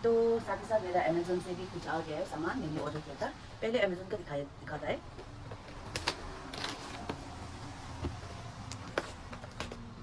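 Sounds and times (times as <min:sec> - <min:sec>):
paper mailer crinkling and rustling: 0:05.6 - 0:07.4
sharp paper crackles: 0:05.6 - 0:07.4.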